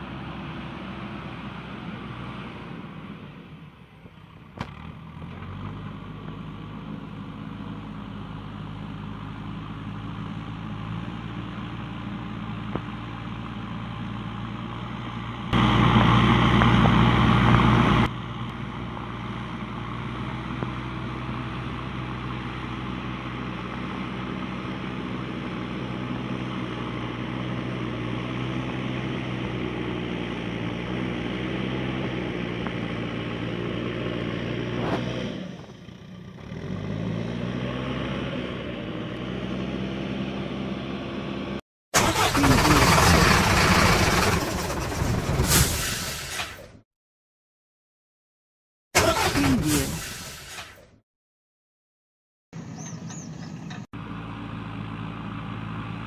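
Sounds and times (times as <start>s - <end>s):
loud truck engine blast: 36.4s - 46.8s, 49.0s - 50.9s
truck engine idling: 42.0s - 45.2s, 52.6s - 56.0s.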